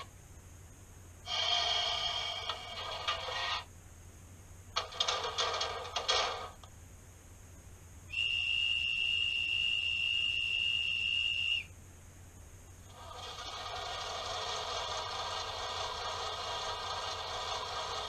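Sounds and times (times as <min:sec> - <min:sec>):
model train whistle: 0:08.1 - 0:11.7.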